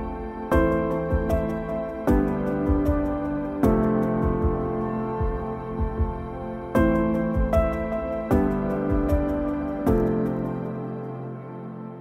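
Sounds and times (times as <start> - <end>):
slow gentle instrumental music: 0.0 - 12.0.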